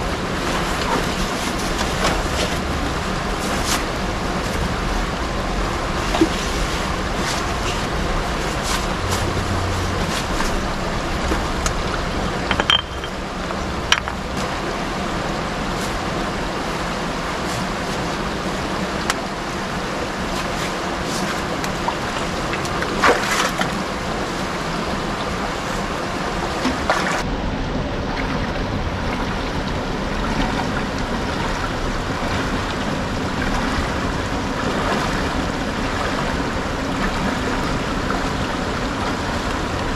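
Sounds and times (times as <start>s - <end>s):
river rushing over rocks: 0.0s - 39.9s.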